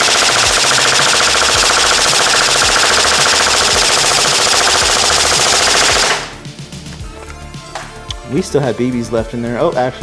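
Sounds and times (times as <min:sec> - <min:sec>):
airsoft gun full-auto rattle: 0:00.0 - 0:06.3.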